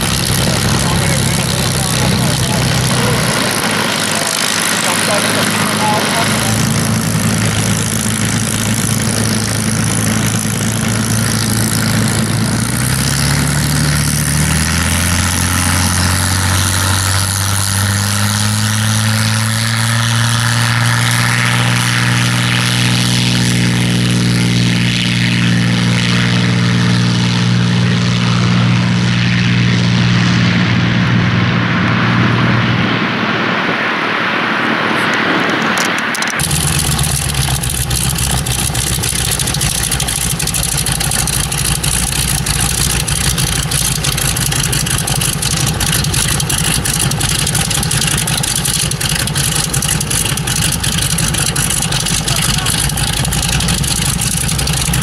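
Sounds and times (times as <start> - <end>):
radial engine idling: 0.0 - 13.2, 35.0 - 55.0
aircraft engine at take-off power: 0.0 - 55.0.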